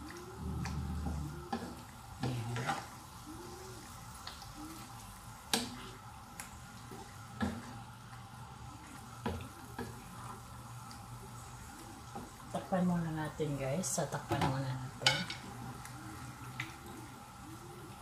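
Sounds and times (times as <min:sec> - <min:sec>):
meat sizzling: 0:00.0 - 0:18.0.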